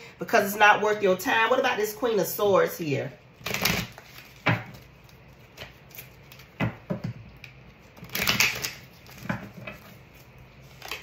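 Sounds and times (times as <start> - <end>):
cards rustling: 3.4 - 6.6, 8.0 - 11.0.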